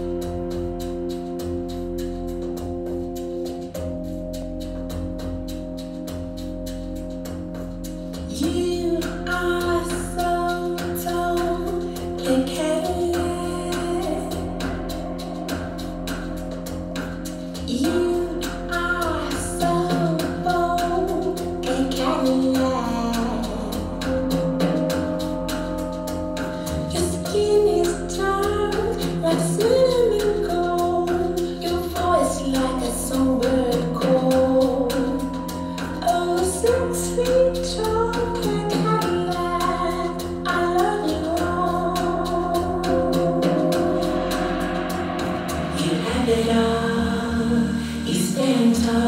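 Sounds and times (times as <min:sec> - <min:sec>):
song with sung melody: 0:08.1 - 0:49.0
sustained instrumental tones: 0:39.1 - 0:49.0.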